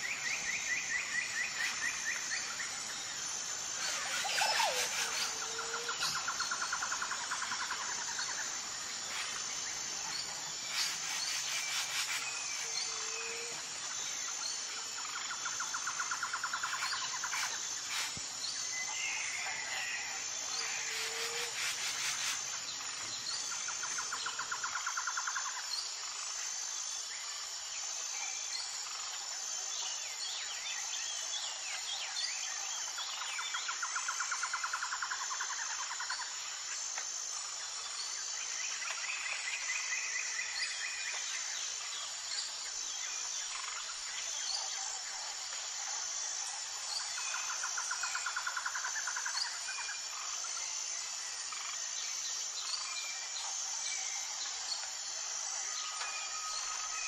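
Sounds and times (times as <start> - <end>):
high-pitched insect buzz: 0.0 - 30.0, 30.6 - 57.0
bird calls: 3.8 - 6.4.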